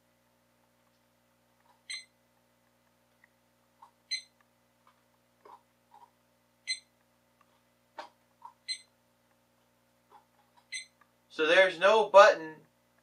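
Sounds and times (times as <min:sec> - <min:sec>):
alarm clock short high beep: 0:01.9 - 0:02.1, 0:04.1 - 0:04.3, 0:06.7 - 0:06.9, 0:08.7 - 0:08.9, 0:10.7 - 0:10.9.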